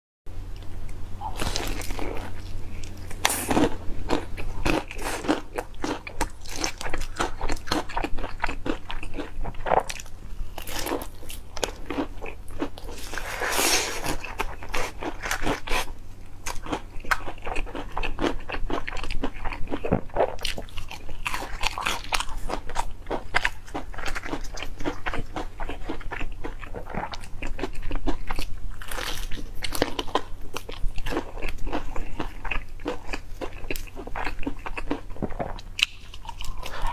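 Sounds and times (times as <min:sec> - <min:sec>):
crunchy chewing of fried chicken: 0:01.2 - 0:36.9.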